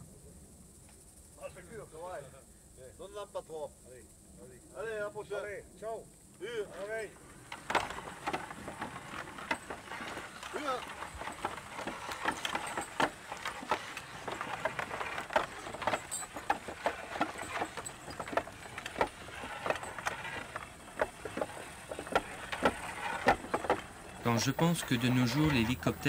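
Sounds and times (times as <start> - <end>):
horse hooves and cart knocking: 6.7 - 26.0.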